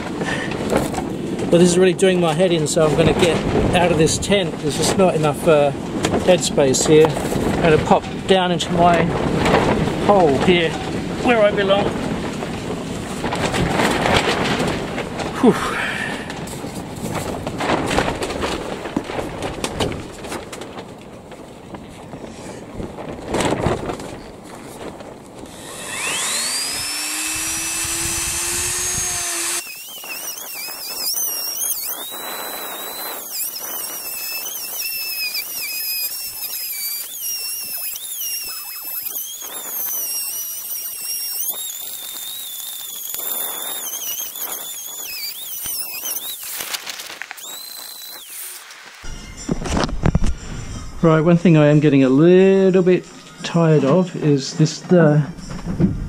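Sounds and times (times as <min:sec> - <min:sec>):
rotary tool grinding whine: 0:25.4 - 0:49.2.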